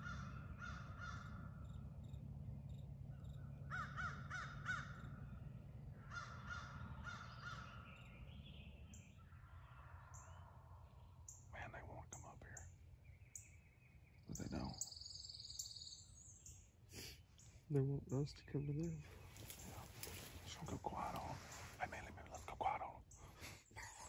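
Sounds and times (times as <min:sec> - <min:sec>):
crows cawing: 0:00.0 - 0:01.8, 0:03.3 - 0:08.4, 0:09.2 - 0:11.0
low steady rumble: 0:00.0 - 0:24.0
high bird chirps: 0:11.2 - 0:23.4.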